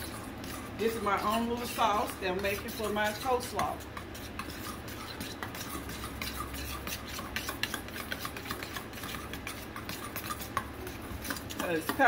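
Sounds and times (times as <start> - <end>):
metal spoon scraping bowl: 0.0 - 12.0.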